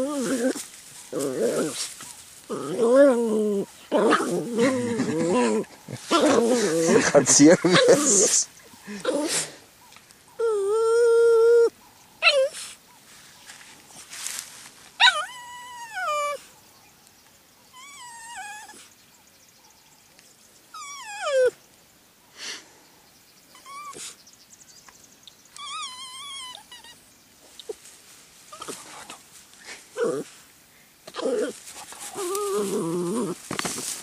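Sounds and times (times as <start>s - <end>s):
puppy whining: 0.0s - 7.1s, 7.7s - 9.5s, 10.3s - 12.8s, 15.0s - 16.4s, 17.7s - 18.9s, 20.7s - 21.6s, 23.5s - 24.2s, 25.6s - 27.0s, 30.0s - 30.4s, 31.1s - 33.4s.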